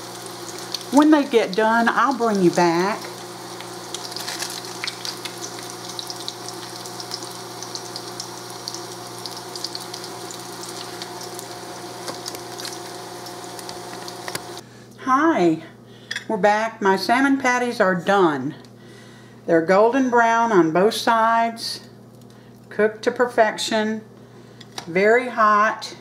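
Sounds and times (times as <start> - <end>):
patties sizzling in a pan: 0.0 - 14.6.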